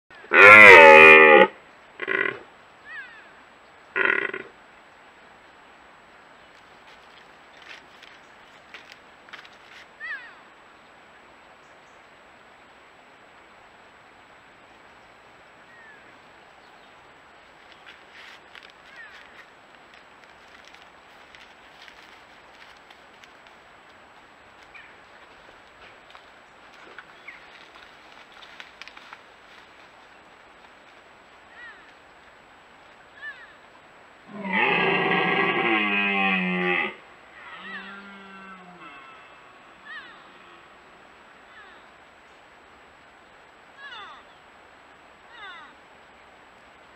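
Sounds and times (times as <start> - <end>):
background hiss: 0.1 - 46.9
deer calf bleating: 4.0 - 4.5, 34.3 - 40.8.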